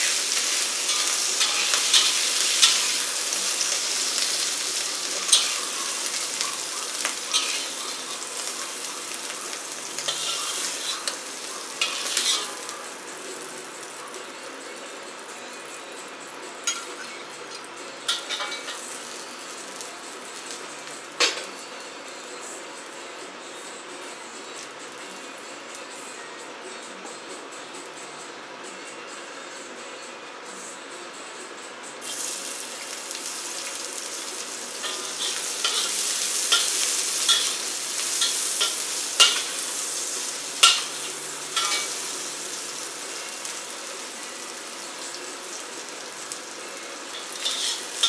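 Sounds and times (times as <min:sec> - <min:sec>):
food sizzling in a wok: 0:00.0 - 0:28.0, 0:32.0 - 0:48.0
metal spatula scraping a wok: 0:00.1 - 0:04.6, 0:05.2 - 0:08.8, 0:10.0 - 0:11.2, 0:11.8 - 0:12.7, 0:34.8 - 0:42.3, 0:47.2 - 0:48.0.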